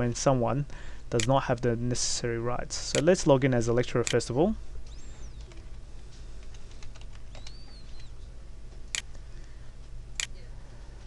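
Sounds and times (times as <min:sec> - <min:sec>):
keyboard typing: 0:06.4 - 0:08.2.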